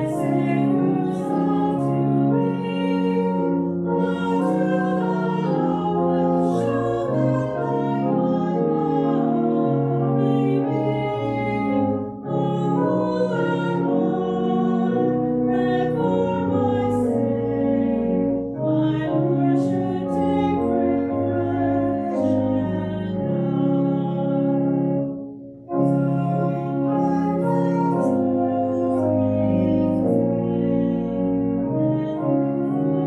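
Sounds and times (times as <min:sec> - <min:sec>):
choir singing: 0:00.0 - 0:25.0
organ: 0:00.0 - 0:33.0.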